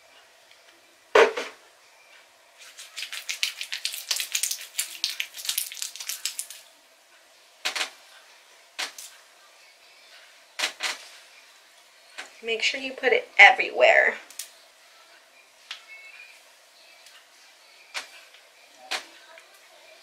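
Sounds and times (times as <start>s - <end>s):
hands rubbing sticky hair: 2.6s - 6.6s.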